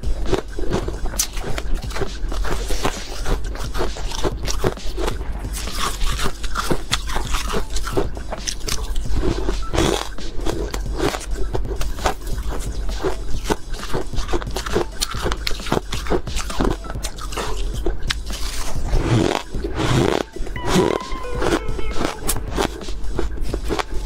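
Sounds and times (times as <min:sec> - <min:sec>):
ice crunching being chewed: 0:00.0 - 0:24.0.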